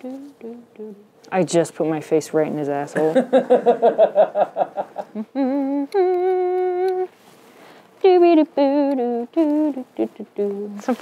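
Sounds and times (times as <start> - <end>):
person humming: 0.0 - 1.1, 5.0 - 7.1, 8.0 - 10.9.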